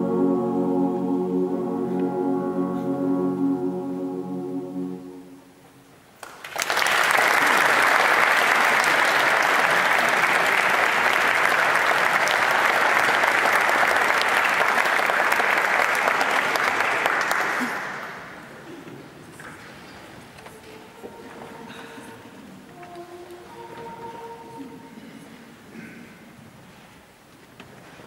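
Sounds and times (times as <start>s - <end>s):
held music chord: 0.0s - 5.9s, 20.5s - 25.4s
audience applause: 6.2s - 18.4s.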